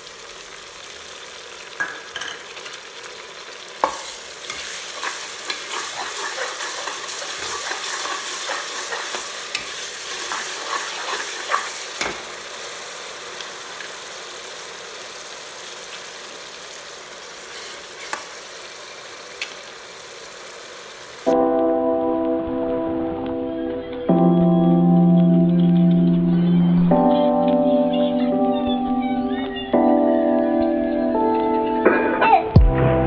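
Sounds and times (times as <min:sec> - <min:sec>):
onions and spices sizzling in oil: 0:00.0 - 0:21.4
metal spatula scraping pot: 0:03.8 - 0:11.9.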